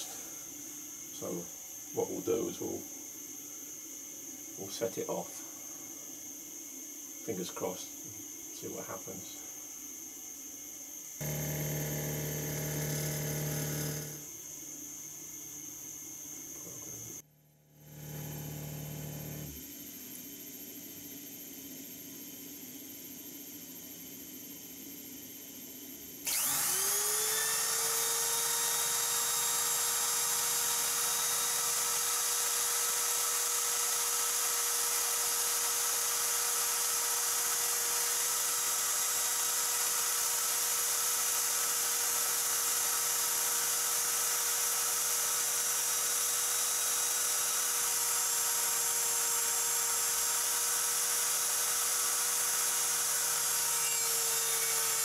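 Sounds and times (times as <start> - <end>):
router motor whining: 11.2 - 17.2, 17.8 - 19.7, 26.2 - 55.0.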